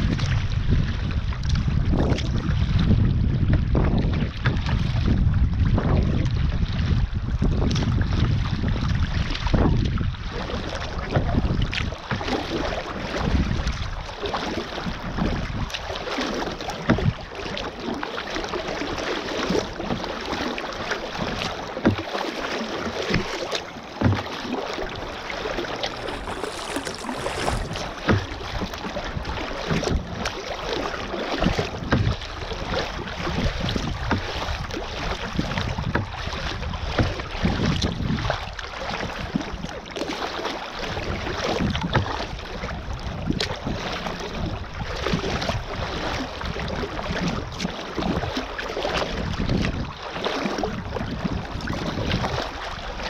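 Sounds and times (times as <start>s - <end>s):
wind buffeting microphone: 0.0s - 15.9s, 24.0s - 38.5s, 50.6s - 53.0s
sea water washing against kayak: 0.0s - 53.0s
water slapping hull: 0.0s - 53.0s.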